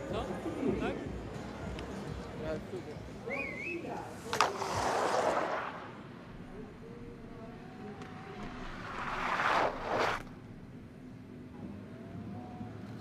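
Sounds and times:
skis hissing on icy tracks: 4.1 - 5.8, 8.6 - 10.2.

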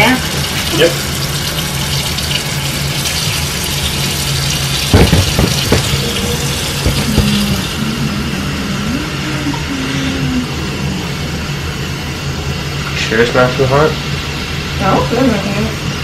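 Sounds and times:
faucet running into sink: 0.0 - 8.0
knocks: 4.9 - 7.7.

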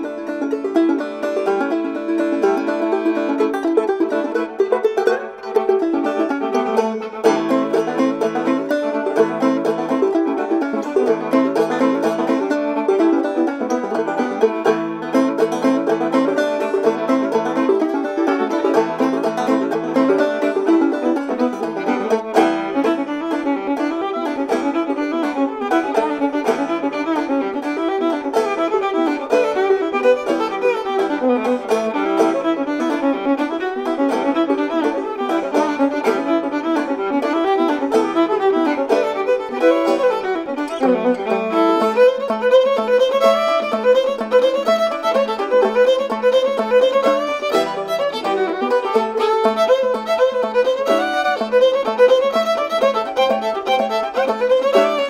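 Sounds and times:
banjo: 0.0 - 55.0
fiddle: 0.0 - 55.0.

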